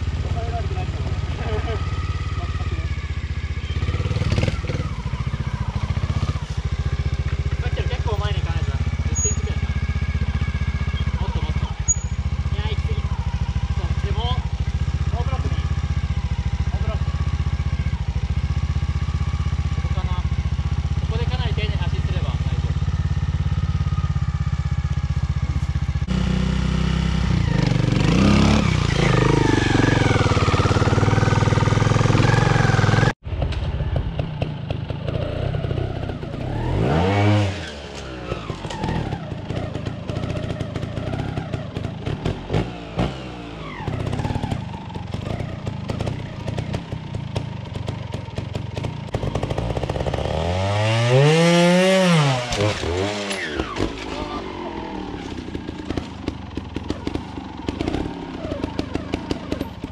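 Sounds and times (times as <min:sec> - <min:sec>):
motorcycle engines revving: 0:00.0 - 0:59.9
engines crackling and blipping: 0:51.0 - 0:59.9.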